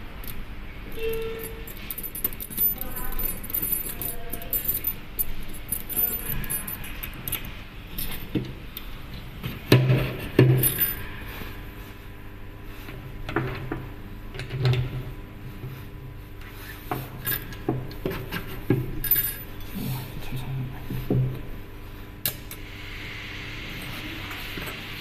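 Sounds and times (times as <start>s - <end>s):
metallic clinks and knocks: 1.0s - 7.4s.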